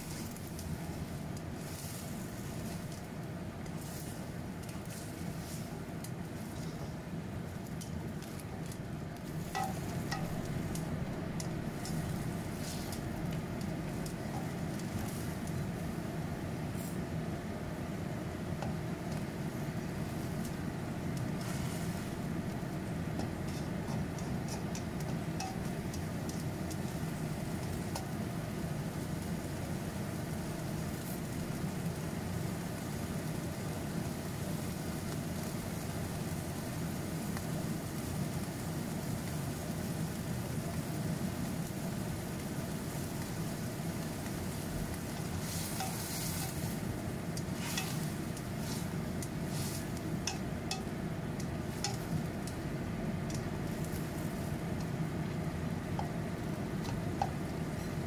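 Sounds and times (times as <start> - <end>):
gas burner rush: 0.0 - 58.0
light sizzling: 0.0 - 58.0
spatula scraping and tapping wok: 7.6 - 15.6, 18.6 - 28.2, 44.2 - 52.6, 55.9 - 58.0.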